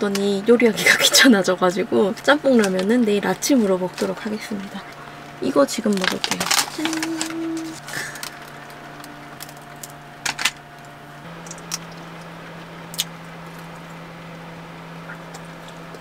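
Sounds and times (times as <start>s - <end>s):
steady low hum: 0.0s - 16.0s
plastic packaging crinkling: 2.5s - 12.3s.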